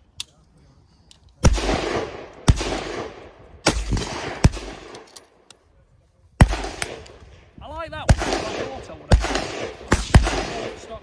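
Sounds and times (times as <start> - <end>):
rifle shots echoing: 1.4 - 5.5, 6.4 - 11.0.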